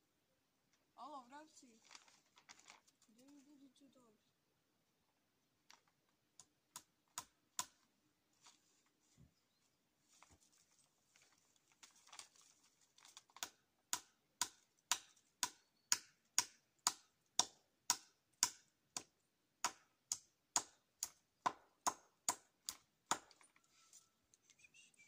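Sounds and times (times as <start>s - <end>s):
hammer striking nail into wood: 13.9s - 22.5s.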